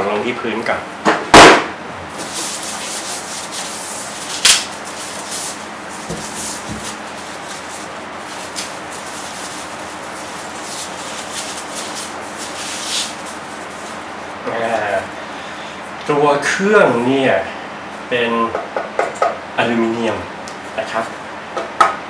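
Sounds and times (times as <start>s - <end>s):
plastic bag crinkling: 2.3s - 14.0s.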